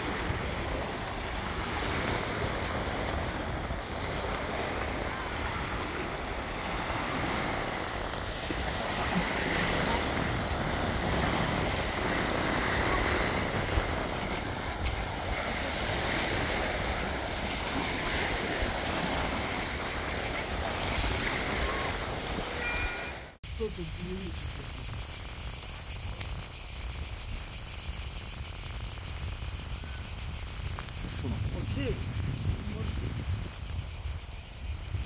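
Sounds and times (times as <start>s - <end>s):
wind on microphone: 0.0s - 23.1s, 24.4s - 35.0s
sea waves: 0.0s - 25.7s.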